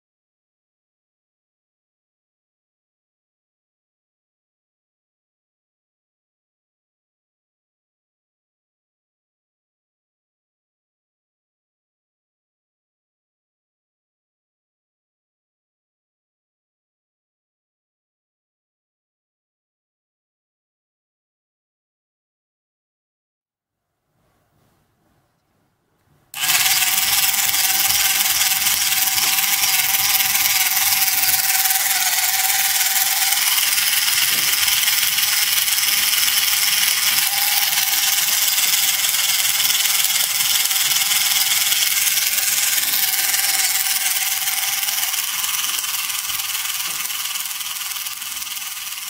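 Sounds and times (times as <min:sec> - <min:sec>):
toy motor and gears whirring: 0:26.4 - 0:49.0.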